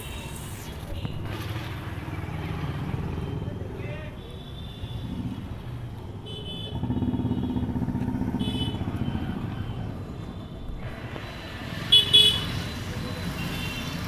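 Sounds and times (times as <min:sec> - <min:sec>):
motorcycle passing by: 0:01.3 - 0:03.6, 0:06.7 - 0:10.0.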